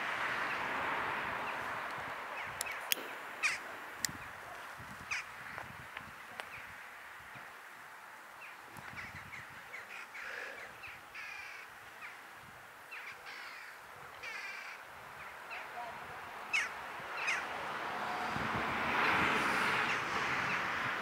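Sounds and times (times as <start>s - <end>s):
flamingos calling: 2.3s - 4.4s, 5.0s - 5.7s, 8.4s - 12.2s, 12.9s - 18.1s.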